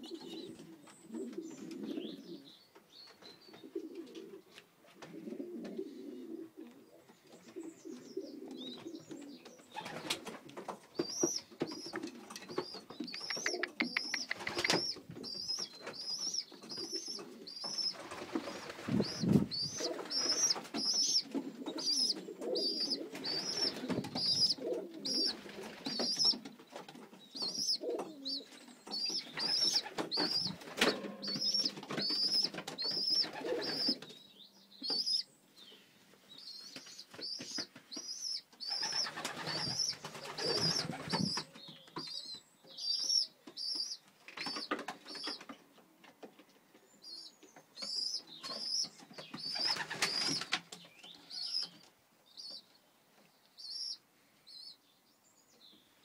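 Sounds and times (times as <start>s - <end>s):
pigeons cooing: 0.0s - 2.6s, 3.4s - 10.4s, 11.0s - 34.2s, 36.5s - 45.4s, 47.9s - 50.6s
high thin peeps: 13.1s - 16.2s.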